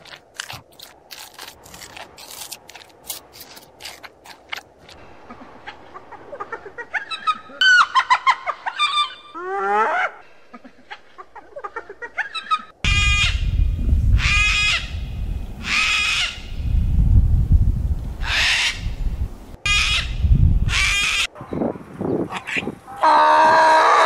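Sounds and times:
crunching and chewing: 0.0 - 5.0.

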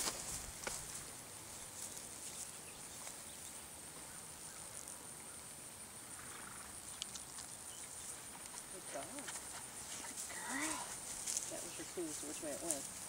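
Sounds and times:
ticks and rustles in dry grass: 0.0 - 4.2, 7.0 - 13.0
steady high hiss: 0.0 - 13.0.

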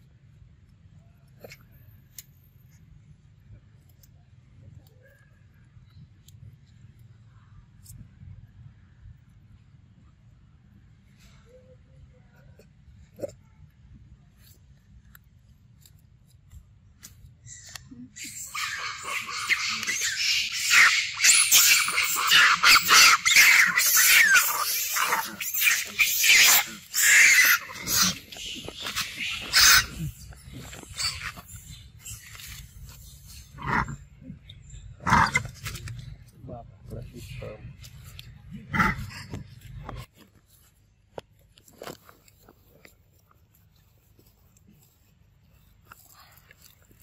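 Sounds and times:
monkeys squealing: 17.5 - 32.7.

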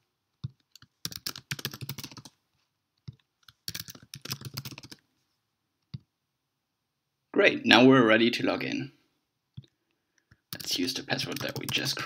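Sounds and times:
typing on computer keyboard: 0.4 - 2.4, 3.0 - 5.0, 10.3 - 12.0.

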